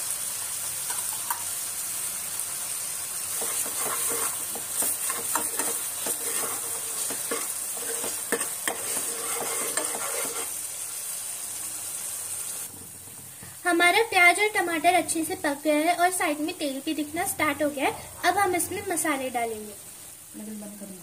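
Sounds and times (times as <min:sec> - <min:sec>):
paste sizzling in hot oil: 0:00.0 - 0:20.9
metal spoon scraping a pan: 0:03.3 - 0:10.6.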